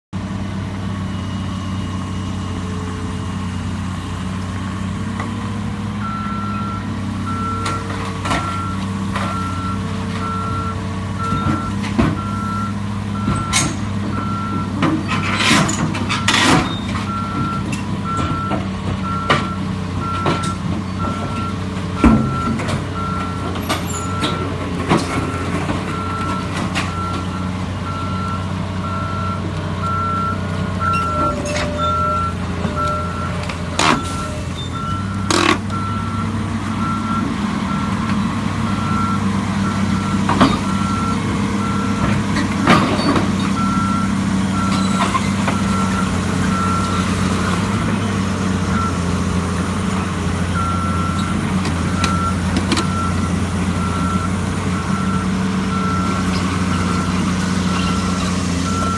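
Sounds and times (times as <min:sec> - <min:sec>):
excavator diesel engine running: 0:00.2 - 0:58.9
metallic clanks of steel tracks: 0:13.2 - 0:14.0, 0:14.7 - 0:21.4, 0:22.0 - 0:27.3, 0:41.9 - 0:43.9.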